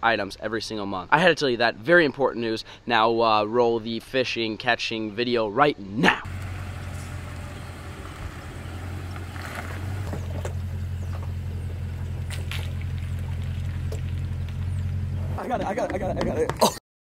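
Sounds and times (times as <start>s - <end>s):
truck engine running at low revs: 6.3s - 16.3s.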